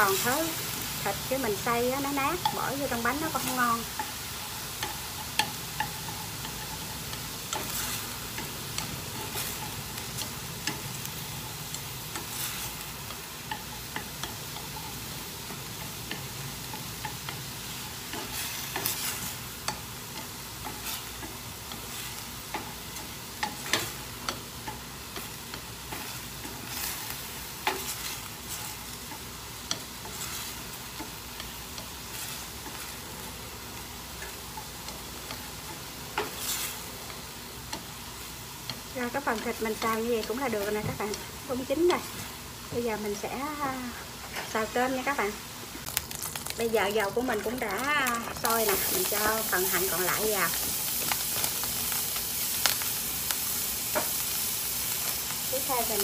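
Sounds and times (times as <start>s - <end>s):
meat sizzling in oil: 0.0s - 56.0s.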